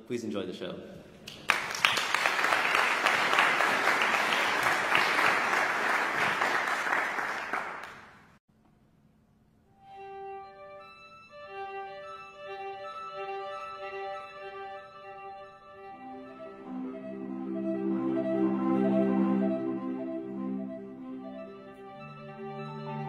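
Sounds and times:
audience applauding: 1.3 - 8.4
violin and cello playing: 10.0 - 23.0.

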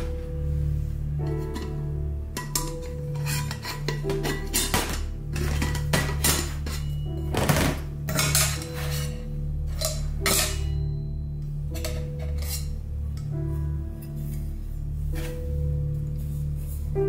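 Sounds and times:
metal lid clinking: 1.3 - 11.0, 11.7 - 13.3.

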